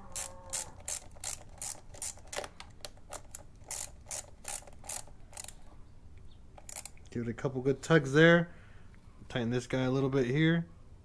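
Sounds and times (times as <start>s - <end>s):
ratchet clicking: 0.0s - 5.6s, 6.6s - 7.0s.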